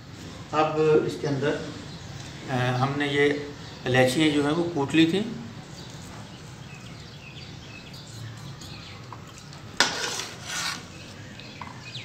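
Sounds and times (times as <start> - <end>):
ladle stirring in pot: 8.6 - 11.1
ladle scraping pot: 9.8 - 11.1.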